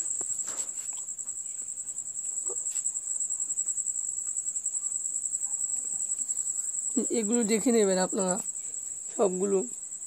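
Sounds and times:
insect trill: 0.0 - 10.0.

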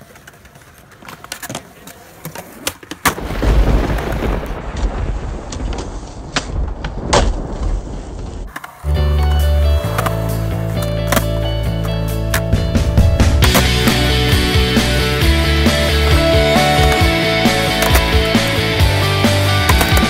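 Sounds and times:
skateboard clacking on concrete: 0.0 - 3.2, 17.7 - 18.3, 19.6 - 20.0
skateboard wheels rolling: 0.0 - 20.0
music with steady beat: 9.0 - 20.0.

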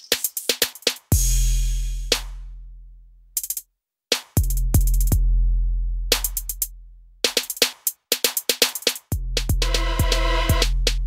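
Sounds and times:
clicking hi-hat hits: 3.4 - 3.6, 6.1 - 11.0.

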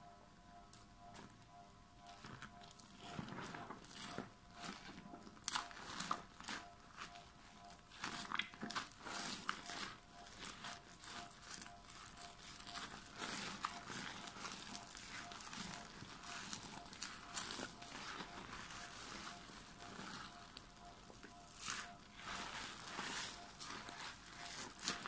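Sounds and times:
wet soap squishing: 7.9 - 25.0.

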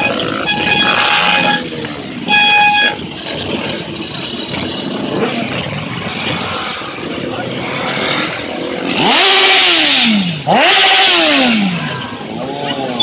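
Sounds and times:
car horn blasts: 0.0 - 3.1
vehicle engines running: 0.0 - 13.0.

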